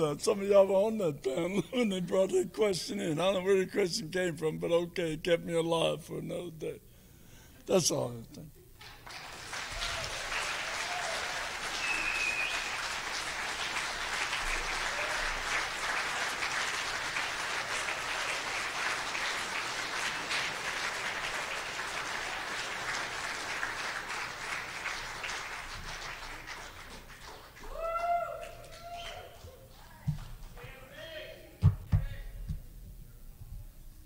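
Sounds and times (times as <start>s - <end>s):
audience applauding: 8.8s - 31.1s
high whoop: 9.7s - 12.1s, 27.6s - 29.4s.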